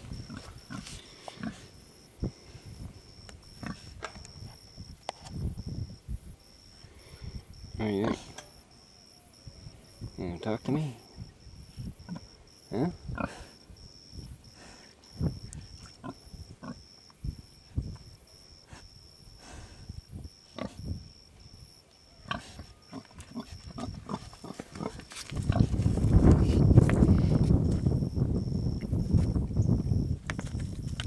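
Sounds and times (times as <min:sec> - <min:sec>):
pig grunting: 0:07.8 - 0:08.4, 0:22.2 - 0:25.7.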